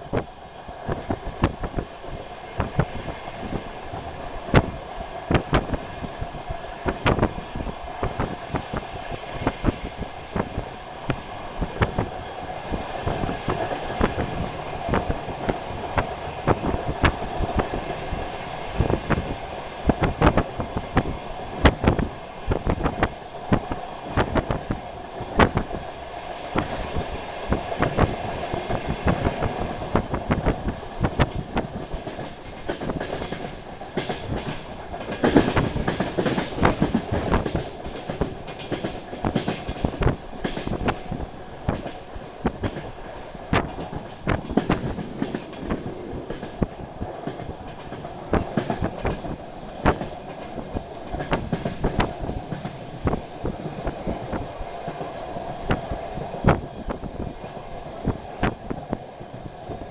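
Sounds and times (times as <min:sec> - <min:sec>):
train engine drone: 0:00.0 - 0:59.9
train wheels clattering over rail joints: 0:26.5 - 0:59.9.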